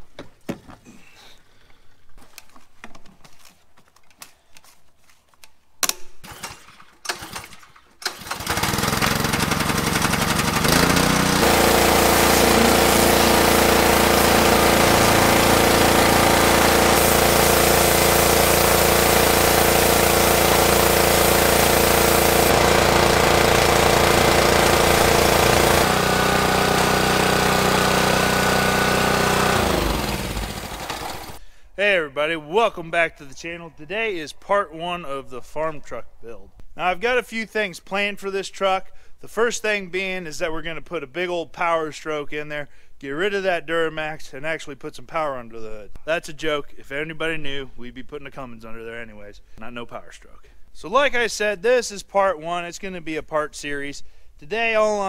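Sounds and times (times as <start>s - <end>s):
pressure washer engine running: 8.2s - 31.4s
water jet hissing: 10.9s - 26.0s.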